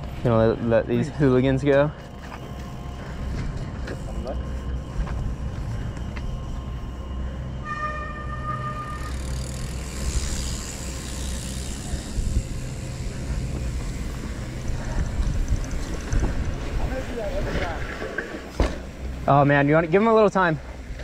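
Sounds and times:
bike tyres rolling on gravel: 0.0s - 21.0s
brief steady tone: 6.6s - 9.4s
wind rumbling on microphone: 9.6s - 18.2s.

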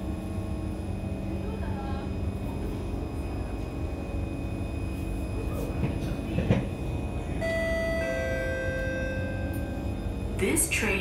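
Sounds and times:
train car low hum: 0.0s - 11.0s
electronic chime: 7.4s - 9.8s.

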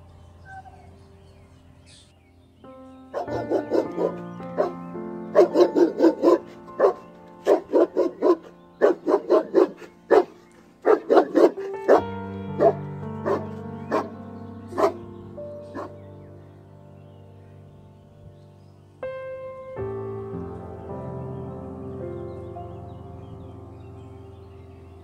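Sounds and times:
background music: 0.0s - 25.0s
dog barking: 3.1s - 14.1s, 14.7s - 15.0s, 15.7s - 16.0s.

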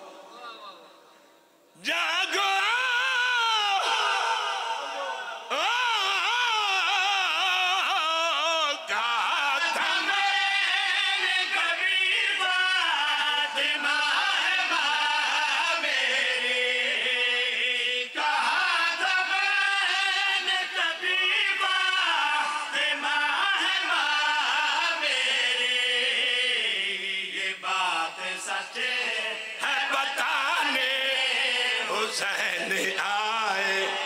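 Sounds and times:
men chanting in unison: 1.8s - 34.0s.

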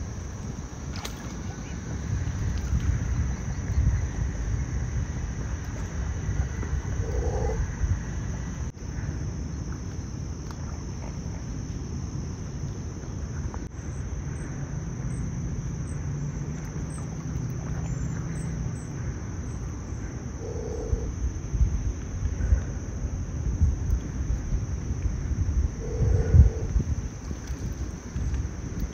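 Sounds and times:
high-pitched insect trill: 0.0s - 11.1s, 13.6s - 28.9s.

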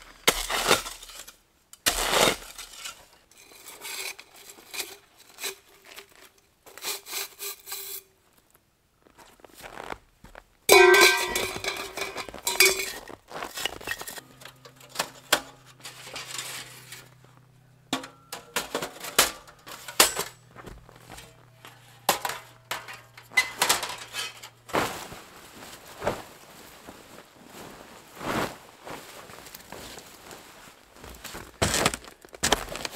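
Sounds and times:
metallic clinks and knocks: 10.7s - 13.0s
stovepipe clanging and ringing: 10.7s - 13.0s, 17.9s - 20.5s, 22.0s - 24.6s
canvas rustling: 24.5s - 32.9s.

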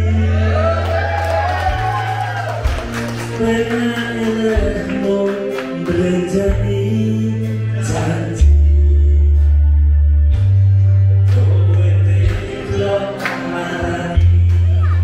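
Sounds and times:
man singing into a microphone: 0.0s - 0.9s, 3.2s - 9.6s, 11.2s - 15.0s
heavy bass notes: 0.0s - 5.2s, 5.9s - 15.0s
amplified backing music: 0.0s - 15.0s.

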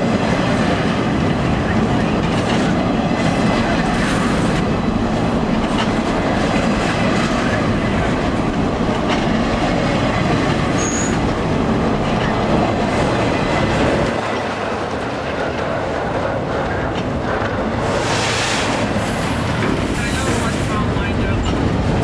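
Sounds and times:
train wheels rumbling on rails: 0.0s - 22.0s
high squeal: 10.8s - 11.2s.

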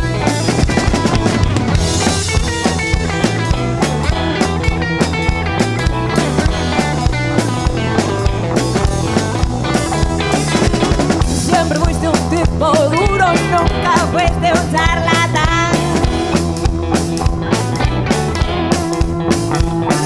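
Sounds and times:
drum kit beat: 0.0s - 20.0s
electric guitars: 0.0s - 20.0s
woman singing: 11.3s - 16.2s.

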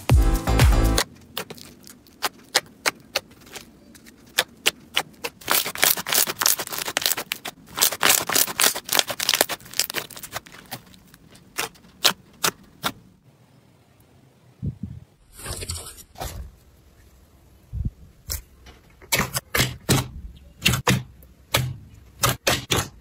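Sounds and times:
fingers squeezing slime: 1.4s - 12.9s.

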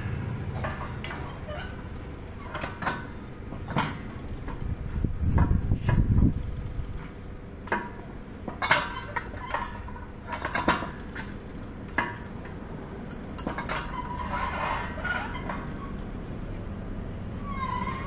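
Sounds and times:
metal-on-metal scraping: 8.5s - 12.3s, 13.4s - 16.7s, 17.3s - 18.0s.

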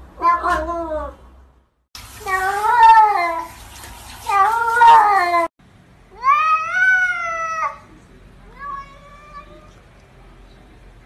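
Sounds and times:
cat meowing: 0.2s - 1.2s.

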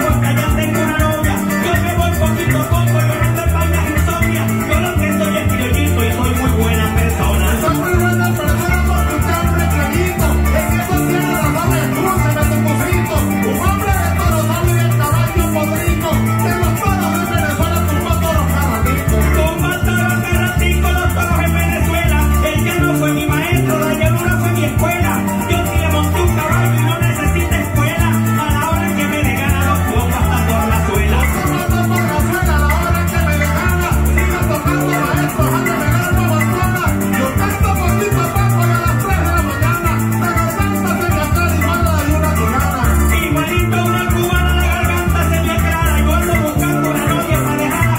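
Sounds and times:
maracas: 0.0s - 47.9s.

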